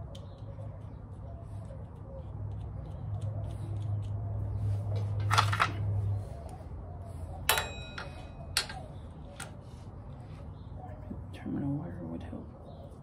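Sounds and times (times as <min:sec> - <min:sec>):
metallic clink: 0:07.5 - 0:08.9.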